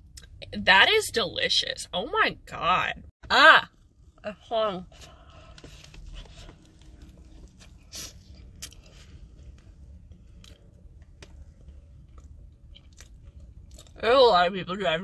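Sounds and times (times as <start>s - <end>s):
low steady rumble: 0.0s - 15.0s
person chewing soft cookie: 5.5s - 14.0s.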